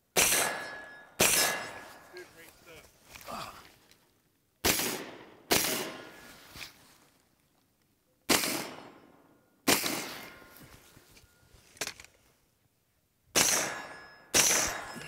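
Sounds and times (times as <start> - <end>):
gunshots with echo: 0.1 - 2.1, 4.6 - 6.2, 8.3 - 10.5, 13.4 - 15.0.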